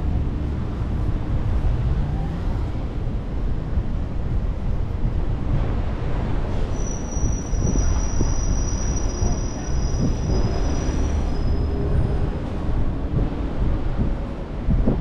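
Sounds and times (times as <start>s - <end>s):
street ambience: 0.0s - 15.0s
wind rumbling on microphone: 0.0s - 15.0s
high thin squeal: 6.7s - 12.0s.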